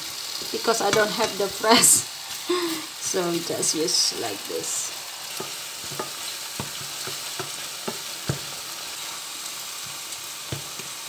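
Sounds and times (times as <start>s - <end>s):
food sizzling in a frying pan: 0.0s - 11.0s
spatula scraping a pan: 5.2s - 9.2s
spatula knocking against pan: 5.4s - 8.5s.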